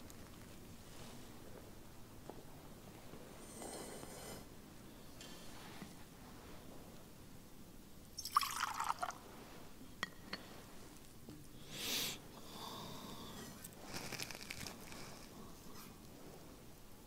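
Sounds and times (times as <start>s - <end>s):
wine trickling into a chalice: 8.2s - 9.2s.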